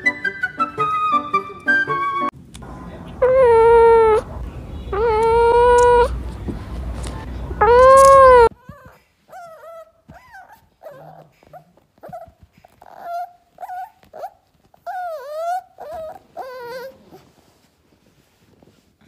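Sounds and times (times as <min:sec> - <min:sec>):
puppy whimpering: 0:03.2 - 0:04.3, 0:04.9 - 0:06.2, 0:07.6 - 0:17.4
cat meow: 0:04.9 - 0:06.2, 0:07.6 - 0:08.9.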